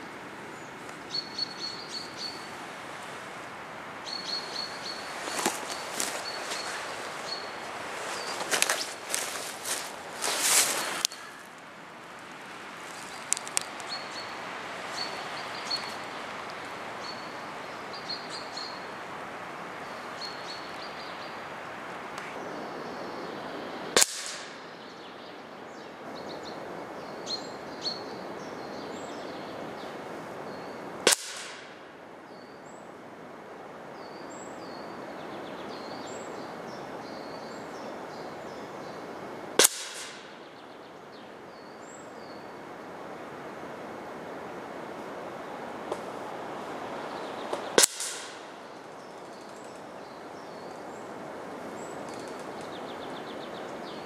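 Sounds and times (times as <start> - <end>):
small birds chirping: 0.0 - 30.9, 45.4 - 54.0
steady outdoor hiss: 0.0 - 54.0
air rifle shots: 24.0 - 24.6, 31.1 - 31.8, 39.6 - 40.4, 47.8 - 48.5.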